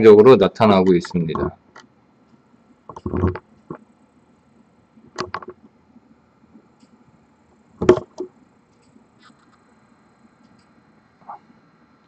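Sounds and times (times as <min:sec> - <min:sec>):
sharp clicks and light knocks: 0:05.1 - 0:05.7.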